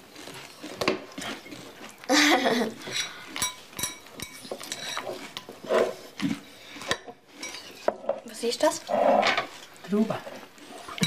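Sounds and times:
cutlery clinking on dishes: 0:02.8 - 0:05.5, 0:06.8 - 0:08.1.

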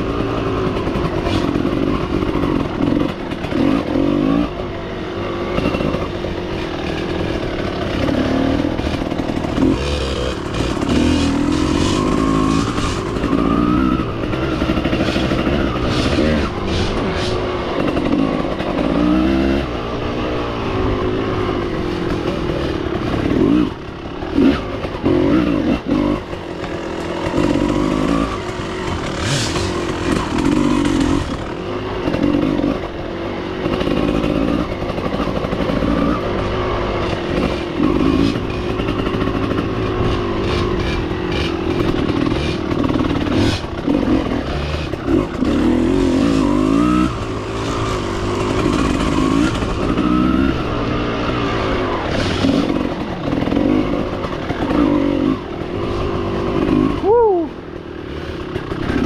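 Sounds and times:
off-road motorcycle engine revving: 0:00.0 - 0:59.0.

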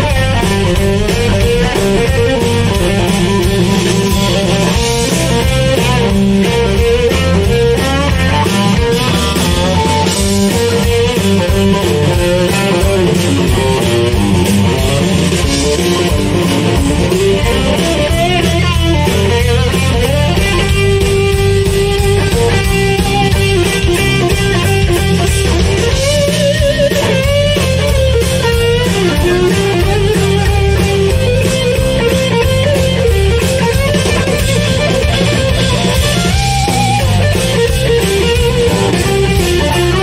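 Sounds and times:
electric guitar: 0:00.0 - 0:40.0
live blues band playing: 0:00.0 - 0:40.0.

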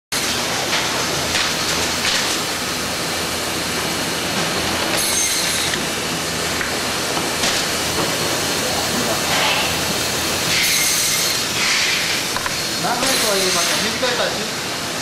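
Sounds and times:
factory machinery running: 0:00.1 - 0:15.0.

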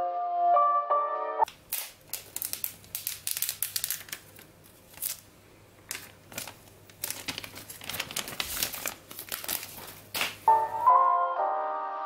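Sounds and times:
plastic film crinkling: 0:01.5 - 0:10.5.

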